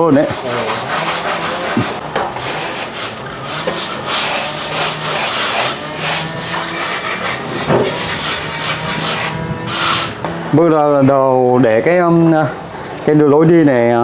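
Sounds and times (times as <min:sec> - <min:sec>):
plastering float scraping cement: 0:00.1 - 0:10.2.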